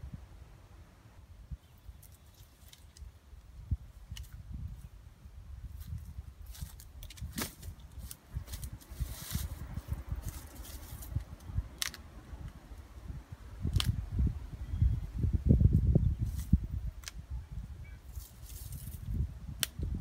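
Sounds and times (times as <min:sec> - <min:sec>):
sticks and grass rustling: 0:01.5 - 0:14.3, 0:15.6 - 0:17.3, 0:18.0 - 0:20.0
sticks snapping: 0:02.0 - 0:03.1, 0:04.1 - 0:04.4, 0:06.5 - 0:08.7, 0:11.0 - 0:12.6, 0:13.7 - 0:14.0, 0:17.0 - 0:17.2, 0:19.6 - 0:19.9.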